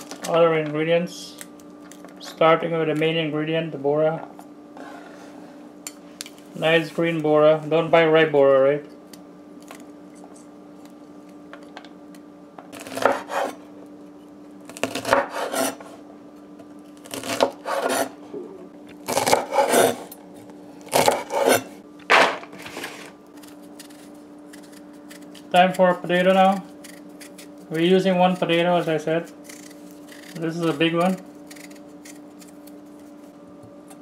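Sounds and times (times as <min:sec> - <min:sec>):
steady low hum: 0:00.0 - 0:34.0
knife chopping beans on wooden board: 0:12.8 - 0:13.5.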